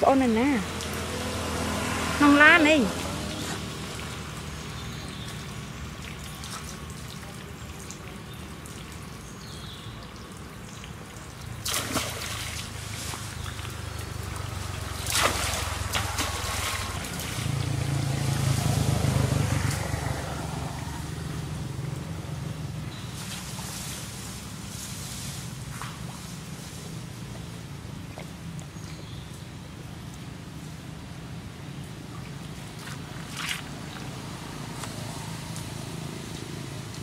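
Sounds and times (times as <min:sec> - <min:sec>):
sharp water splashes: 0:00.0 - 0:22.0, 0:31.7 - 0:37.0
water sloshing and trickling: 0:00.0 - 0:37.0.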